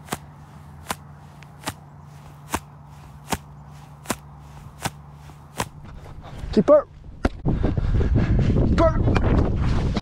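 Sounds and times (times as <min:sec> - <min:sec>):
sharp slaps: 0:00.0 - 0:05.8
steady low hum: 0:00.0 - 0:08.7.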